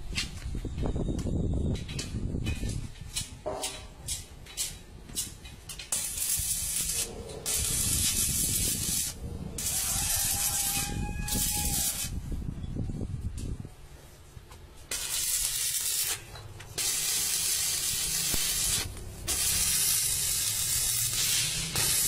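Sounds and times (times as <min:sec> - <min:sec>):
bursts of hissing: 0:06.0 - 0:12.1, 0:14.9 - 0:22.0.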